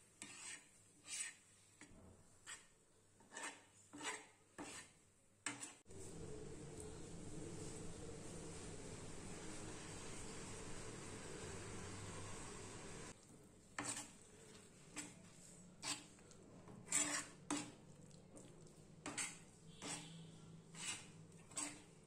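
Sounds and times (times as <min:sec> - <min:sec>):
metal spatula scraping griddle: 0:00.2 - 0:01.5, 0:02.4 - 0:05.8, 0:13.8 - 0:14.3, 0:15.8 - 0:17.8, 0:19.0 - 0:22.0
steady hiss: 0:06.1 - 0:13.1.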